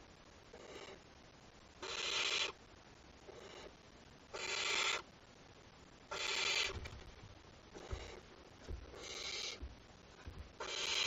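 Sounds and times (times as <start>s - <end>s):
owl chicks hissing begging calls: 1.8s - 2.6s, 3.3s - 5.1s, 6.1s - 6.8s, 9.0s - 9.6s, 10.6s - 11.0s
soft low thumps: 6.7s - 10.6s.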